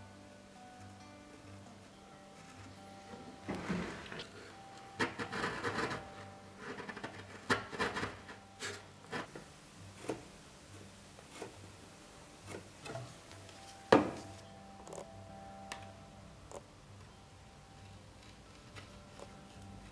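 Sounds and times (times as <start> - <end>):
chisel scraping wood: 2.4 - 10.3.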